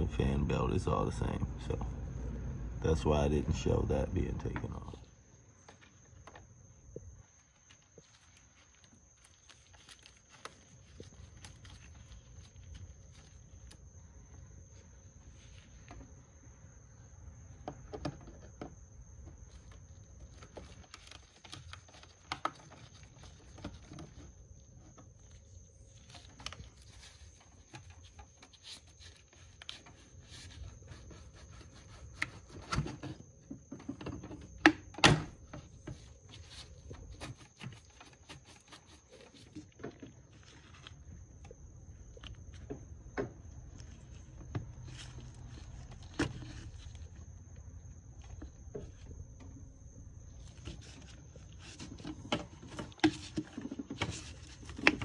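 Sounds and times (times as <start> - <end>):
plastic and rubber parts rattling: 50.4 - 55.0.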